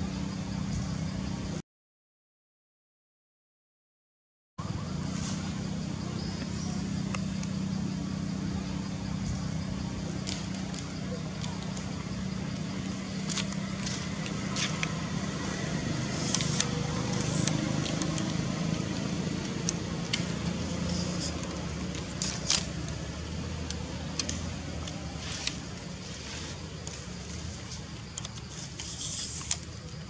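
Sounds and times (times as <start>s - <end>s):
steady low motor hum: 4.6s - 30.0s
sharp clicks and crackles: 10.1s - 25.9s, 27.7s - 29.9s.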